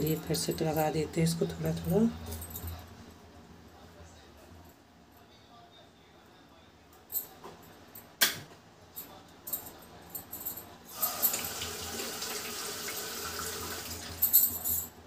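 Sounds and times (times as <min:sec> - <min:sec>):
water running: 0:10.9 - 0:14.4.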